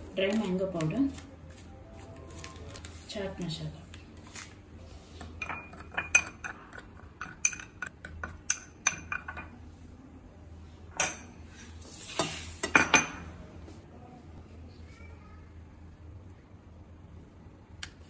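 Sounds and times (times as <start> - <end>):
spoon clinking against glass bowl: 5.4 - 9.6.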